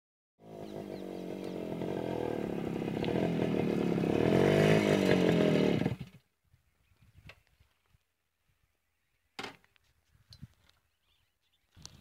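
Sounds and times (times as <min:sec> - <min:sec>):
motorcycle engine running: 0:00.4 - 0:06.2.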